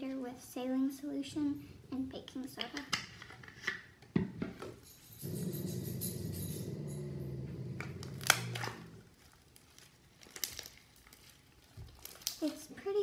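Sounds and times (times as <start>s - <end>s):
slime squelching by hand: 7.8s - 12.9s.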